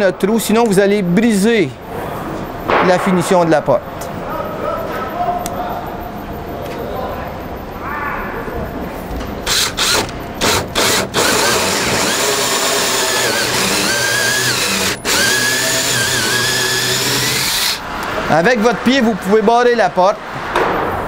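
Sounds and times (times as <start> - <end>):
drill cutting into wood: 9.5 - 17.8.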